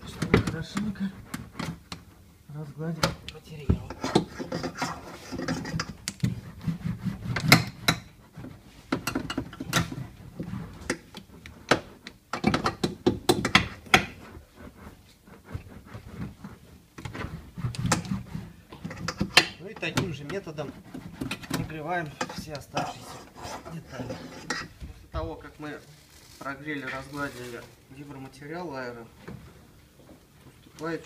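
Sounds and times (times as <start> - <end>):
clicks and knocks on sheet metal: 10.8 - 14.2.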